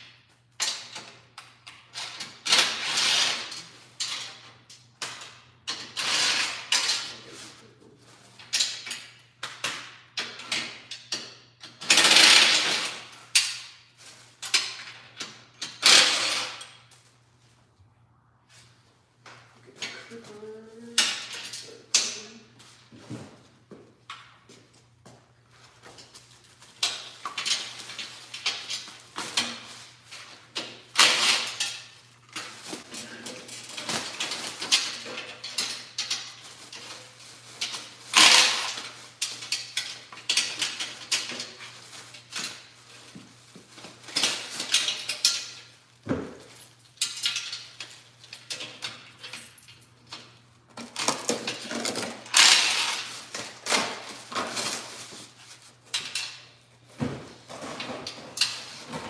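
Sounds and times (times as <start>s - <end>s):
metal clinking and rattling: 43.8s - 56.6s.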